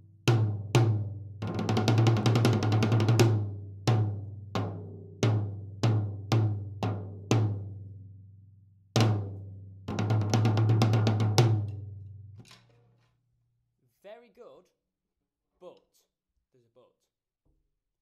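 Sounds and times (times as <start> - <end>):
tom drum roll and hits: 9.9 - 11.7.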